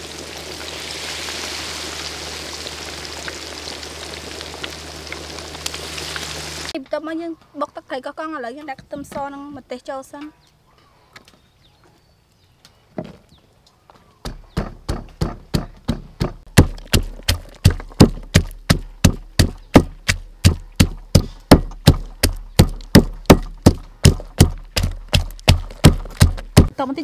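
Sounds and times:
pestle pounding in wooden mortar: 0:14.2 - 0:26.7.

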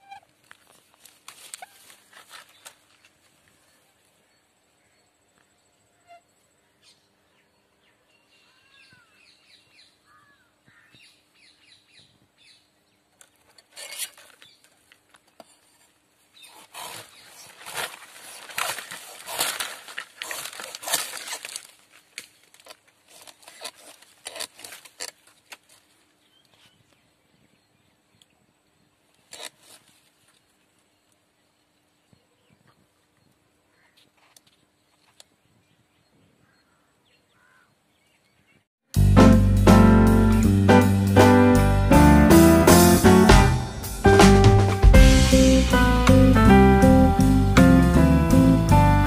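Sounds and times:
dry palm fronds crackling: 0:00.1 - 0:03.8, 0:13.4 - 0:26.6
faint bird chirps: 0:03.6 - 0:12.7.

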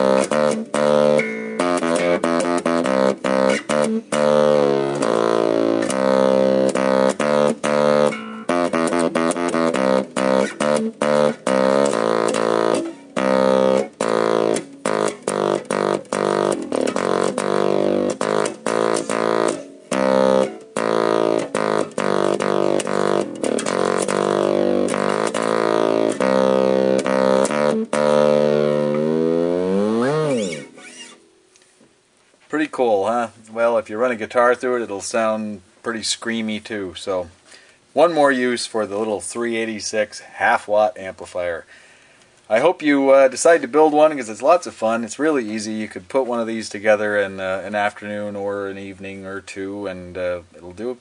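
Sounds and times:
distorted electric bass melody: 0:00.0 - 0:31.6.

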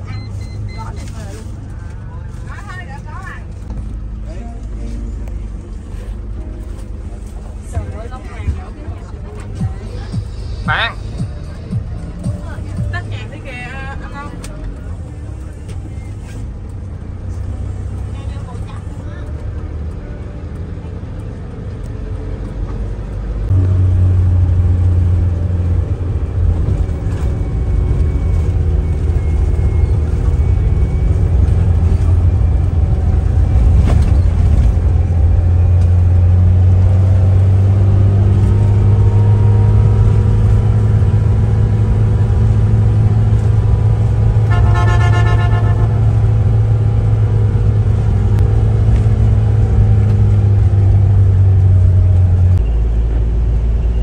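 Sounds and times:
bus engine and road rumble: 0:00.0 - 0:54.0
bus horn toot: 0:43.9 - 0:46.7.

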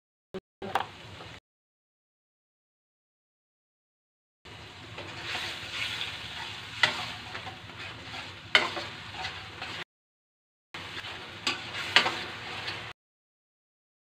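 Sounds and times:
sauce sizzling in a wok: 0:04.5 - 0:09.8, 0:10.8 - 0:13.0.

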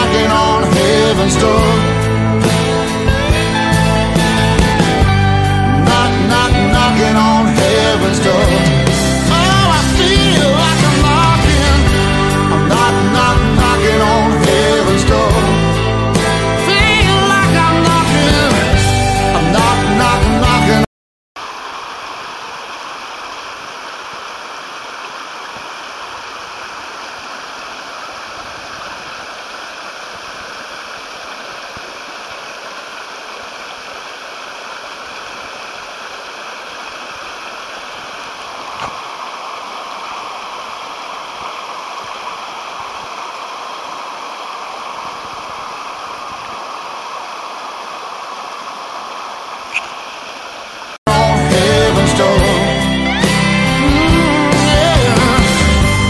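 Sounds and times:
stream rushing over rocks: 0:00.0 - 0:18.8, 0:21.4 - 0:56.0
brief click: 0:49.7 - 0:50.0.

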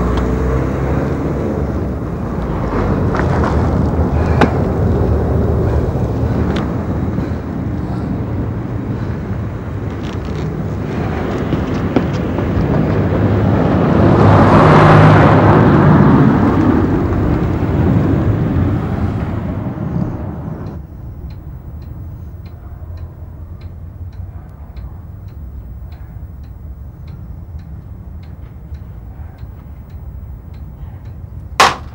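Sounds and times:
vehicle rushing past: 0:00.0 - 0:09.8, 0:10.7 - 0:20.8
quiet steady ticking: 0:20.6 - 0:31.9.

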